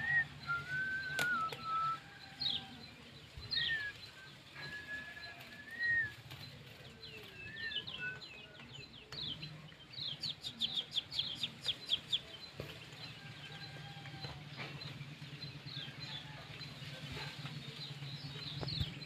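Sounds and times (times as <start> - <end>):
thin whistled notes: 0.0 - 2.2, 3.5 - 8.3.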